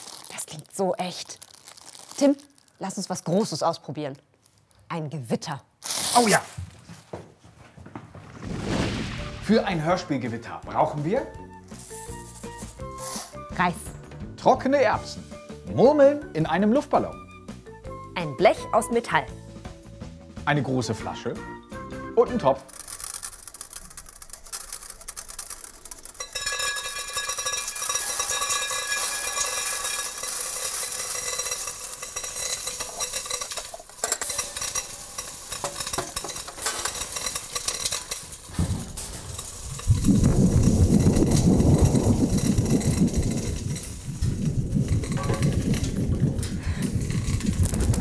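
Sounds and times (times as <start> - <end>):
rice and peas pattering into metal pot: 0.0 - 3.6, 8.2 - 13.4, 22.2 - 48.0
metal sheet thunder rumble: 8.2 - 10.5, 38.3 - 48.0
pot ringing: 22.6 - 44.1, 44.9 - 45.9.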